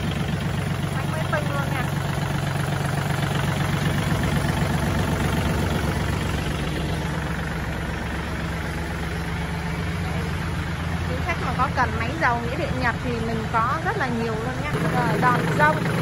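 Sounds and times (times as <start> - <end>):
tractor diesel engine idling: 0.0 - 16.0.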